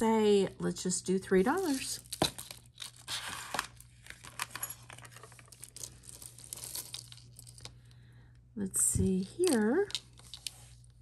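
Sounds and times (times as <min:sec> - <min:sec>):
bag crinkling: 0:01.7 - 0:07.7
jewelry clicking and clinking: 0:04.2 - 0:07.8, 0:09.2 - 0:10.6.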